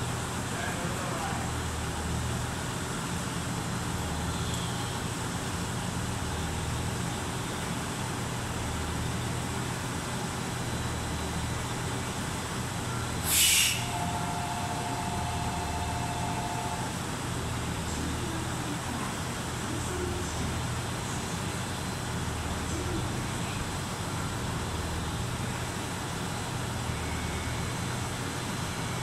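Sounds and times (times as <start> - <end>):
diesel railcars idling: 0.0 - 29.0
compressed air hiss: 13.2 - 14.0
two-note tone: 13.8 - 16.9.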